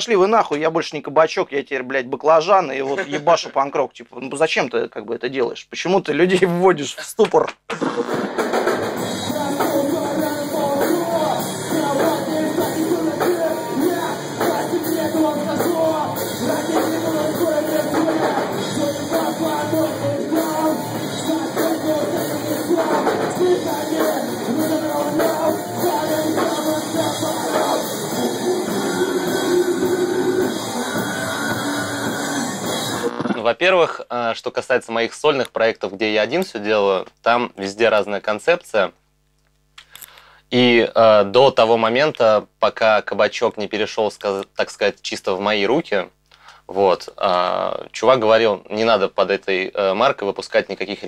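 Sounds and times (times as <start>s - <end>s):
drums: 7.0s - 33.5s
electric guitar: 7.7s - 33.4s
vocalist singing into microphone: 9.1s - 32.6s.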